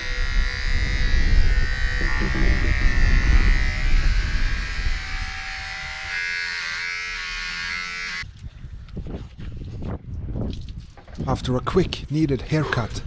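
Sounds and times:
electric hair clippers buzzing: 0.0 - 8.2.

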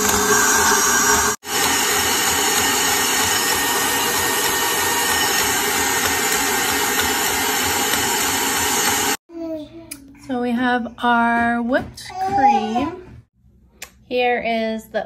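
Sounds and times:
electric mixer whisking cream: 0.0 - 9.2.

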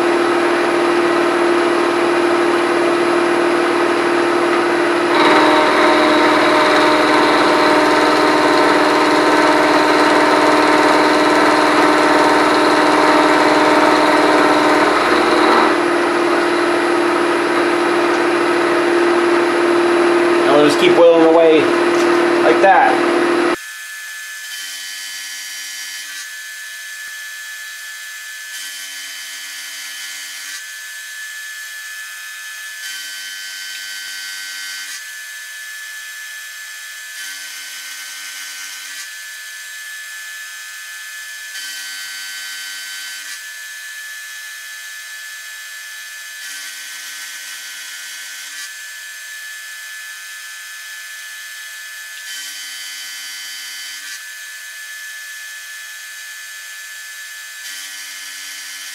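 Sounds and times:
milling machine high whine: 0.0 - 23.6
low machine hum: 3.6 - 23.6.

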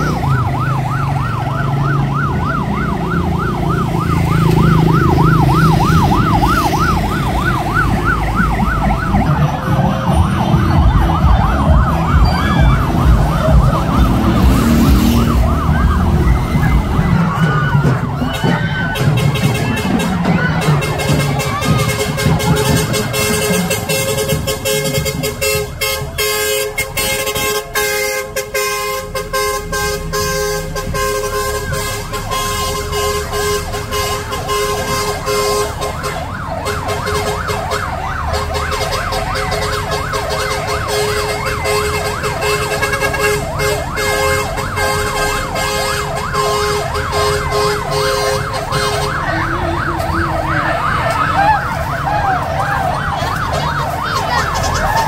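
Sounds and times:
vehicle sirens yelping: 0.0 - 55.0
music with a beat: 7.9 - 25.3.

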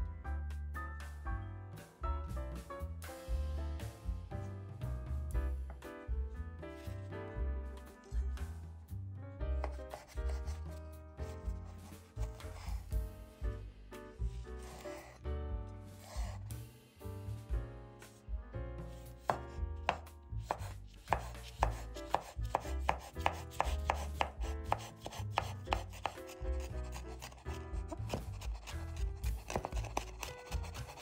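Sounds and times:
knife chopping on cutting board: 9.6 - 10.7, 19.2 - 31.0.

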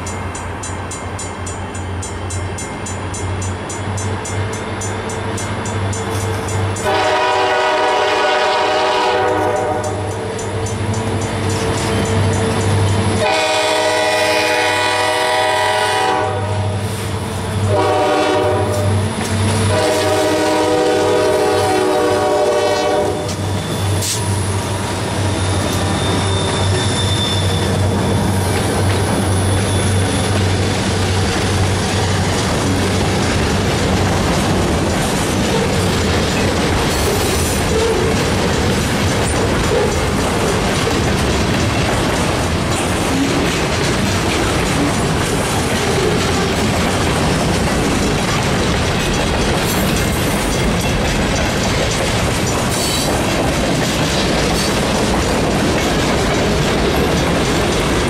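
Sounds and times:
freight cars wheel clickety-clack: 0.0 - 58.0
locomotive horn blasts: 6.8 - 10.1, 13.2 - 16.8, 17.7 - 19.0, 19.6 - 23.4.

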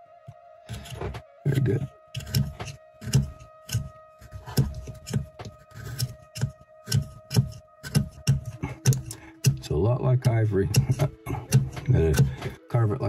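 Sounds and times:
knife scraping wood: 0.7 - 1.1, 2.1 - 9.6, 10.7 - 12.4.

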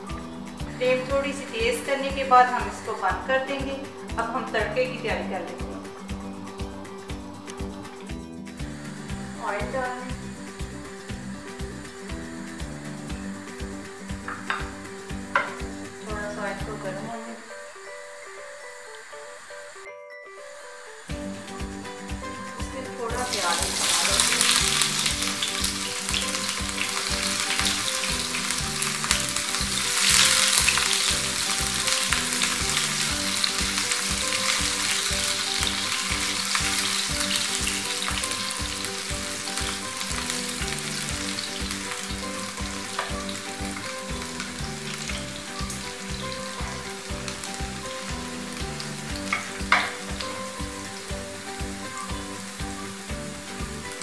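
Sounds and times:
onions sizzling in frying pan: 0.0 - 19.8, 20.6 - 54.0
spatula stirring in pan: 23.3 - 48.7.

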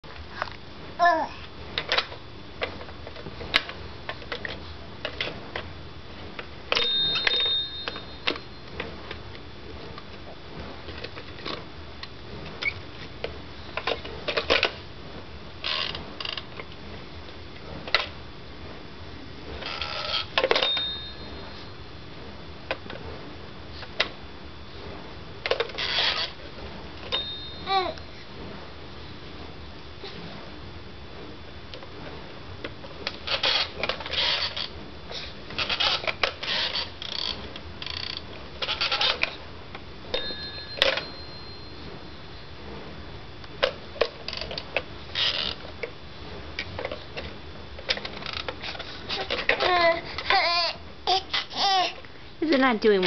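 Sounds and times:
bell-like ringing: 6.8 - 8.6, 20.6 - 21.8, 27.1 - 27.7, 40.2 - 42.5
toy telephone clicks and knocks: 40.2 - 41.2.

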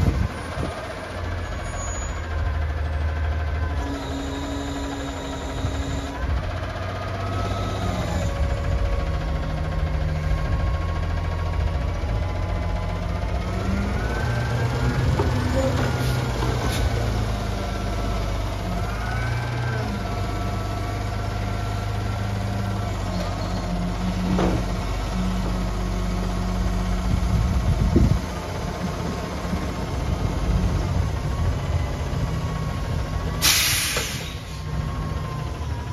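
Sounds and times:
diesel engine revving: 0.0 - 35.9
hydraulic whine: 3.7 - 6.4, 7.2 - 8.8.

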